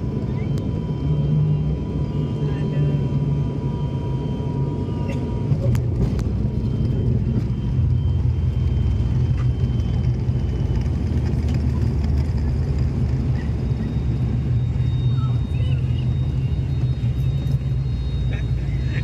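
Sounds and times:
propeller plane engine drone: 0.0s - 19.0s
faint high whine: 12.6s - 19.0s.

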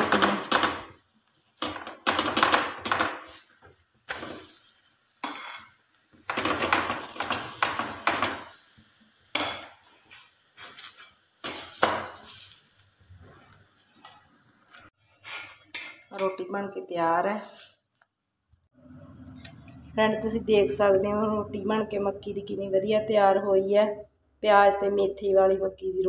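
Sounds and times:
ghee hissing on griddle: 3.2s - 15.5s
metal spoon scraping griddle: 4.2s - 8.7s, 9.3s - 16.3s.

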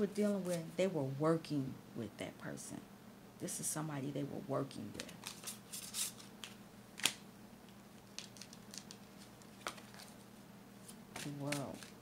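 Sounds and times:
cards sliding and rustling: 5.0s - 7.2s, 8.2s - 12.0s
card snapping: 6.4s - 7.2s.

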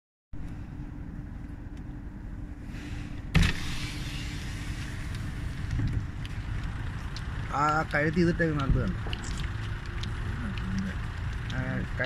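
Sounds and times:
engine and road rumble: 0.3s - 12.0s
wind and road hiss: 0.4s - 12.0s
sudden thump: 3.3s - 3.8s.

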